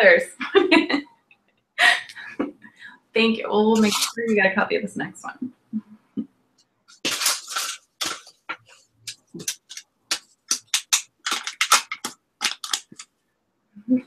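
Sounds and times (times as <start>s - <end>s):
sticky notes rustling: 3.6s - 4.4s, 6.9s - 13.1s.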